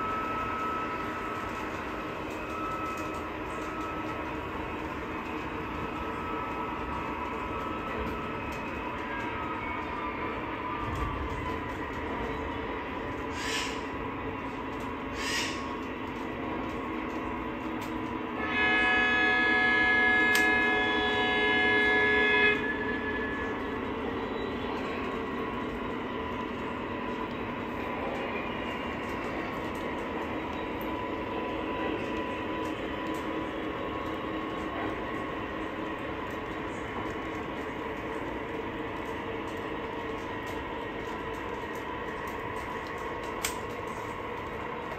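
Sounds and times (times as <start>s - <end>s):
model trains rolling hum: 0.0s - 44.9s
diesel horn: 18.4s - 22.8s.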